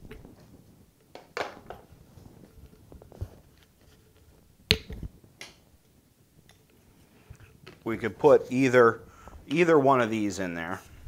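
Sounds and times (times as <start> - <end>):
plastic caps clicking and knocking: 1.0 - 1.9, 4.7 - 5.6.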